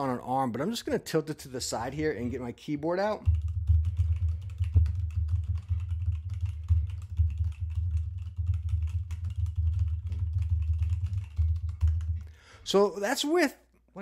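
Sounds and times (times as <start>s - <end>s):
fast typing on keyboard: 3.2s - 12.4s.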